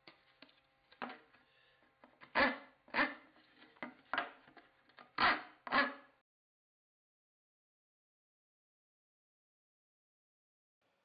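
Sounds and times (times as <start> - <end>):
rasp scraping wood: 2.1 - 6.1.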